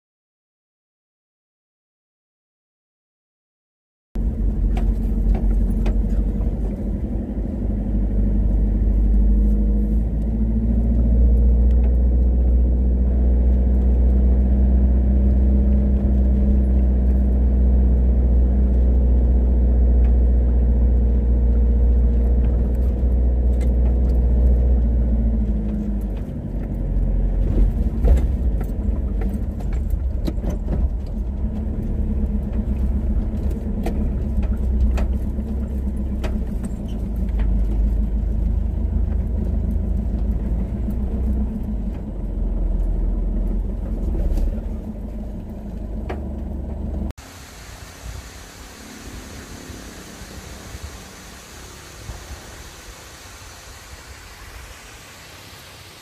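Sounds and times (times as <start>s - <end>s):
car engine and road hum: 4.2s - 56.0s
light rattles and clicks: 19.9s - 47.1s.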